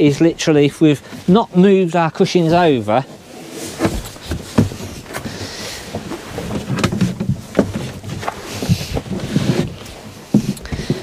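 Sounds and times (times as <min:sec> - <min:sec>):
rustling: 0:00.0 - 0:11.0
wooden slats knocking and clattering: 0:03.8 - 0:11.0.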